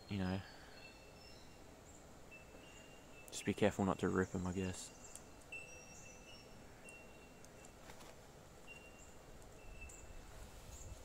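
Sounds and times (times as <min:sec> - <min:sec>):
faint high-pitched chirps: 0:04.2 - 0:07.8, 0:08.6 - 0:11.0
faint click: 0:05.1 - 0:05.5.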